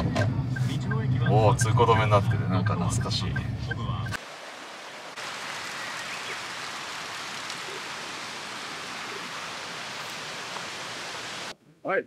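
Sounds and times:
waterfall rushing: 0:04.2 - 0:11.5.

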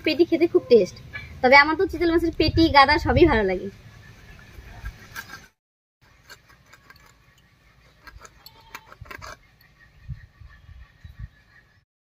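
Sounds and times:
knife scraping and crunching fish: 0:06.1 - 0:09.5.

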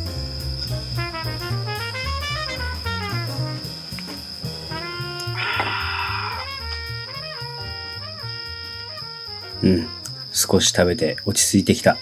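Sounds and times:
upbeat jazzy music: 0:00.0 - 0:10.3.

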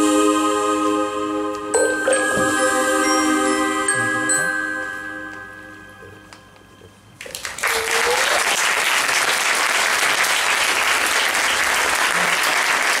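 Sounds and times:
music chimes: 0:00.0 - 0:07.2
audience clapping: 0:07.2 - 0:13.0
person whooping: 0:07.6 - 0:08.4.

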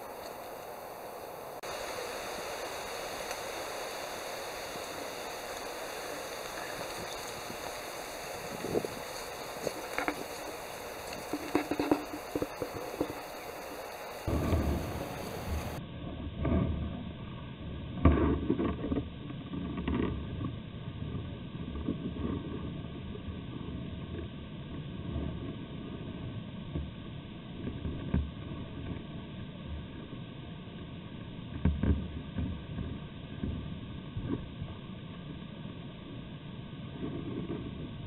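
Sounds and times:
wind buffeting microphone: 0:01.6 - 0:15.8.

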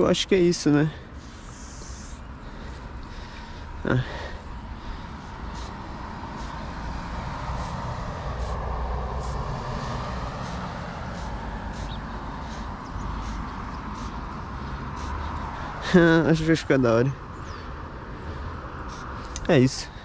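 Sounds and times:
road traffic rumble: 0:00.0 - 0:20.0
spray paint can hissing: 0:01.2 - 0:02.3, 0:05.2 - 0:15.4, 0:18.9 - 0:19.4.

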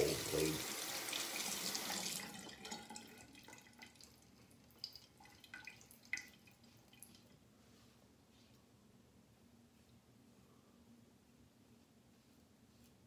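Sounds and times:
water dripping: 0:00.0 - 0:07.3.

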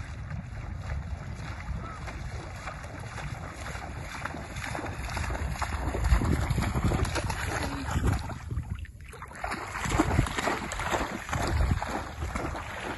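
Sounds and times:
dog splashing in shallow water: 0:00.0 - 0:12.9
wind rumbling on microphone: 0:00.0 - 0:12.9.

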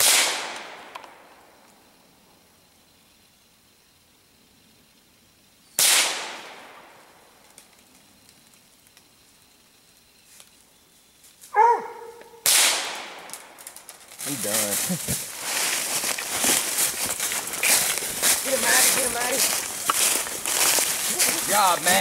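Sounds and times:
dog barking: 0:11.5 - 0:12.4.

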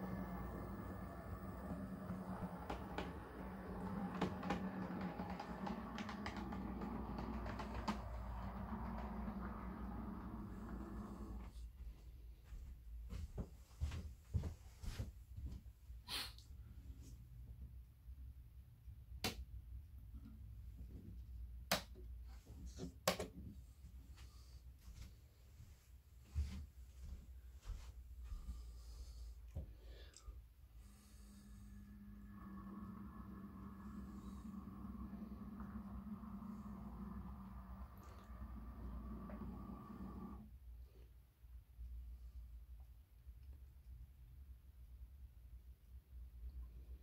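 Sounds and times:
steady low hum: 0:00.0 - 0:15.6, 0:23.6 - 0:43.8.

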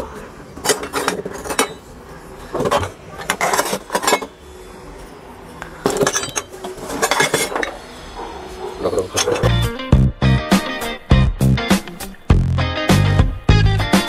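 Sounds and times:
iron pots and pans clanking: 0:00.6 - 0:01.9, 0:02.5 - 0:04.4, 0:05.8 - 0:07.8, 0:08.9 - 0:09.8.

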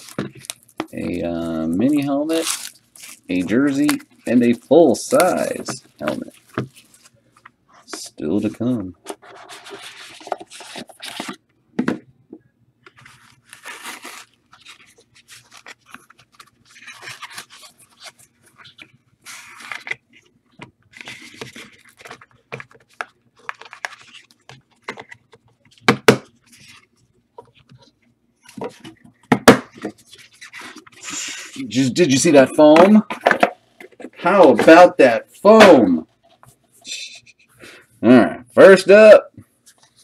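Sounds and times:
packaging tearing and crinkling: 0:00.0 - 0:07.1, 0:13.0 - 0:20.0.

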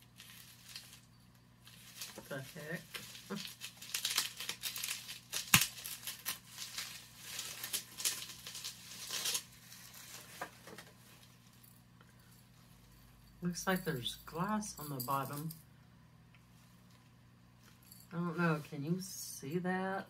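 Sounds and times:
plastic wrapping crinkling and tearing: 0:00.0 - 0:11.5.

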